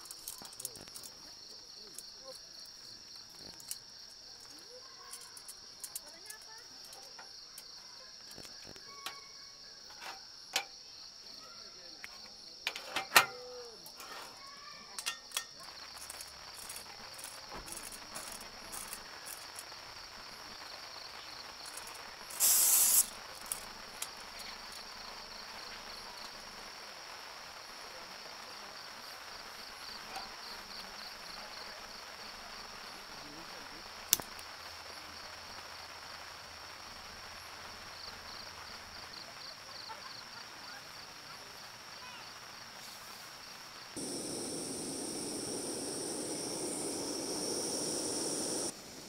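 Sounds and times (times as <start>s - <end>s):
crickets trilling: 0.0s - 49.0s
gas hiss: 22.2s - 23.6s, 44.0s - 49.0s.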